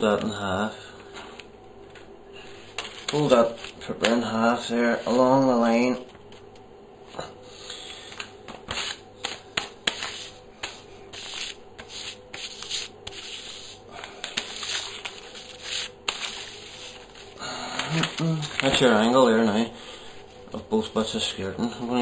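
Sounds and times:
paper being folded and rustling: 2.4s - 4.3s, 8.2s - 19.1s.

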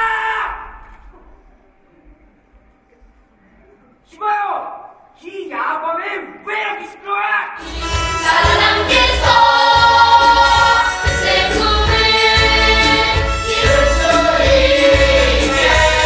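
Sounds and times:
ensemble singing: 7.6s - 16.0s.

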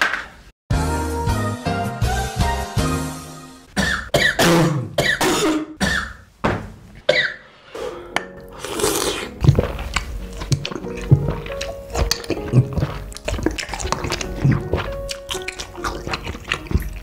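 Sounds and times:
man coughing: 3.8s - 6.2s, 7.1s - 7.4s.

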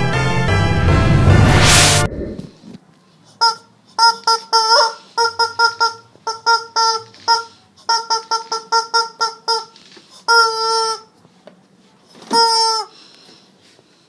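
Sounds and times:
rubber chicken toy squeaking: 3.4s - 11.1s, 12.1s - 13.0s.

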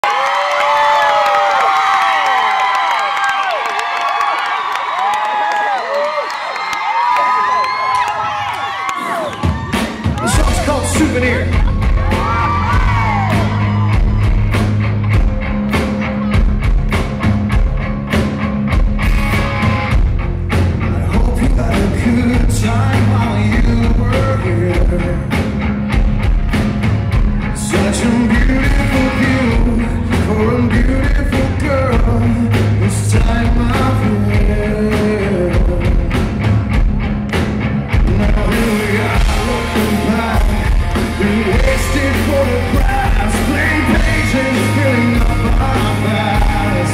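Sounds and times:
drums: 7.7s - 46.9s
bass guitar: 9.5s - 46.9s
electric guitars: 9.5s - 46.9s
man singing lead: 10.2s - 14.1s, 20.8s - 25.5s, 27.5s - 36.3s, 37.9s - 46.9s.

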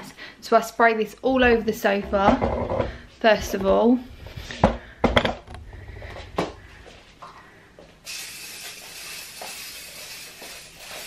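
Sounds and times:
aerosol spray hiss: 8.0s - 11.0s.

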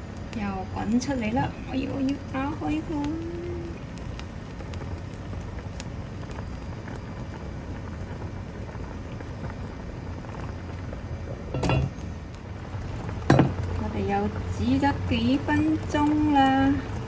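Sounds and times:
liquid boiling hard in a pot: 0.0s - 17.0s.

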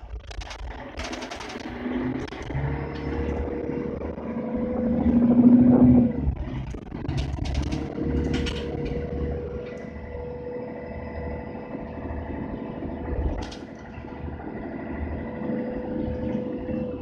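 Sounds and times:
bus diesel engine rumble: 0.0s - 17.0s
sharp rattle: 0.3s - 2.6s.

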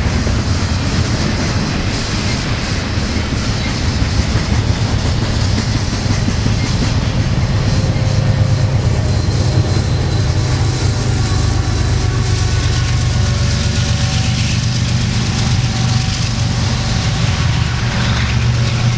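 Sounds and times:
train wheels rumbling on rail: 0.0s - 18.9s
low drone: 6.8s - 18.9s.

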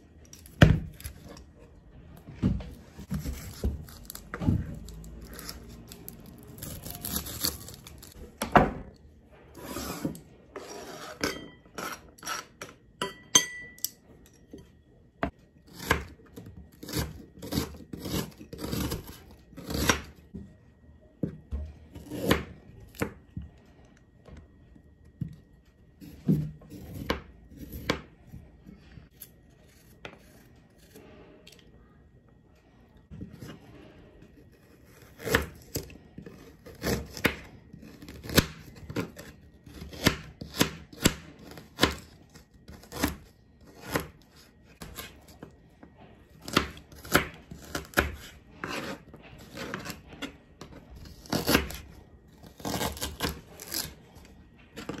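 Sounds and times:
onion skin rubbing and scraping: 3.0s - 8.2s, 46.4s - 55.0s.

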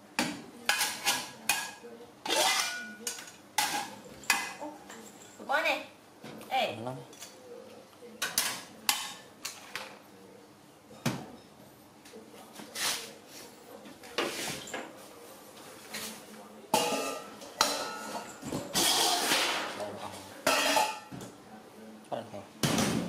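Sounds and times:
metal dishes clattering: 0.7s - 5.0s, 16.7s - 21.2s.

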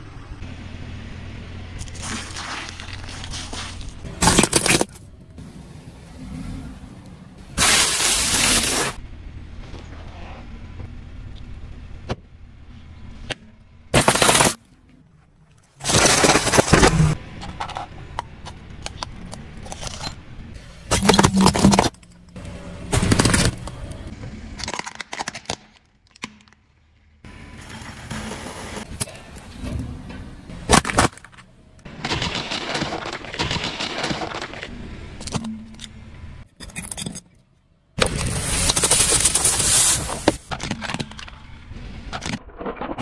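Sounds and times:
car low rumble: 0.0s - 7.6s, 9.0s - 14.0s
tyre crushing plastic toys: 1.8s - 5.0s, 14.0s - 14.6s, 15.8s - 17.2s, 20.9s - 22.0s, 22.9s - 23.9s, 30.7s - 34.7s.

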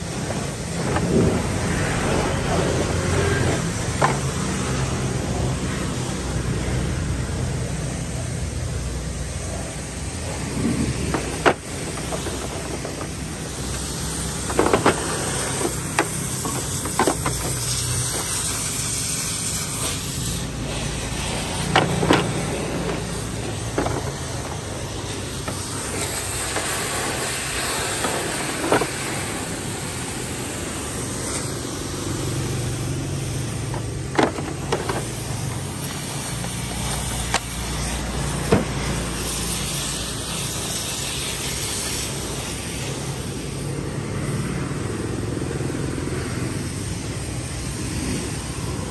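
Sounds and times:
plastic tool case clicks and knocks: 34.1s - 35.1s.

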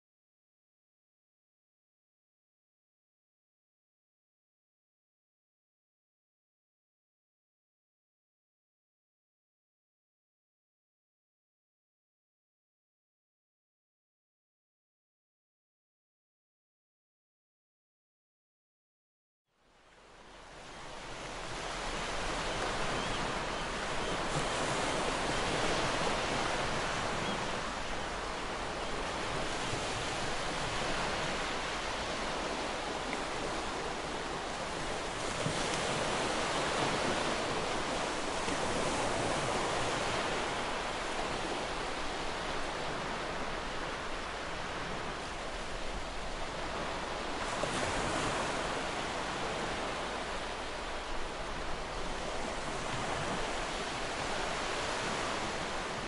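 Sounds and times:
ocean surf washing on shore: 19.9s - 56.0s.

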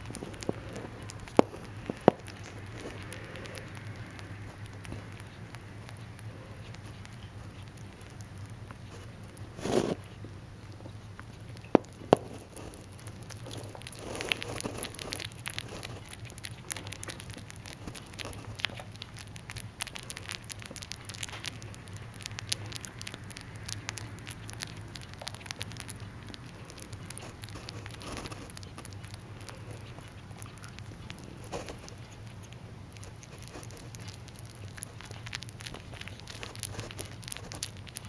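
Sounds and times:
low steady hum: 0.0s - 38.0s
rabbit chewing: 0.0s - 38.0s.

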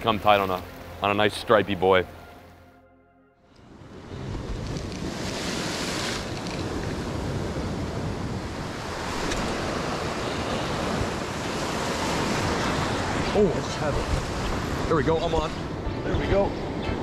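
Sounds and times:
wind buffeting microphone: 3.6s - 17.0s
surf breaking on rocky shore: 4.3s - 15.4s.

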